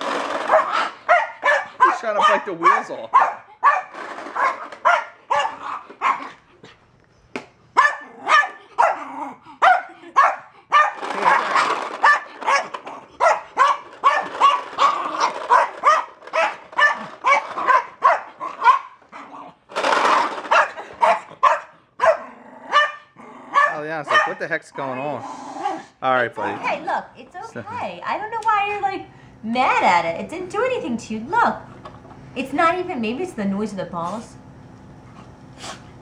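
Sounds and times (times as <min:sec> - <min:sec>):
dog barking: 0:00.5 - 0:06.4, 0:07.8 - 0:19.3, 0:20.5 - 0:24.4.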